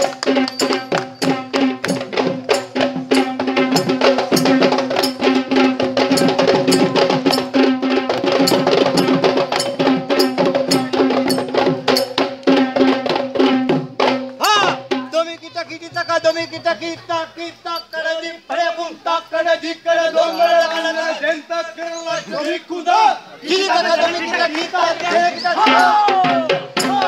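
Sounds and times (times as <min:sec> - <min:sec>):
fast hand drumming: 0:00.0 - 0:17.0, 0:25.6 - 0:27.0.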